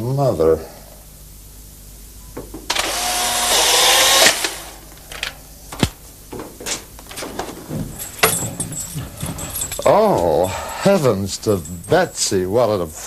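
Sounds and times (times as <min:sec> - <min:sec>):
camera motor drive whirring: 0:02.7 - 0:04.7.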